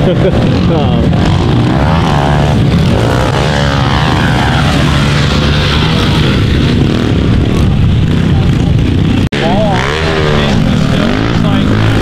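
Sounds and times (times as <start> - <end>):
pit bike engines revving: 0.0 - 12.0.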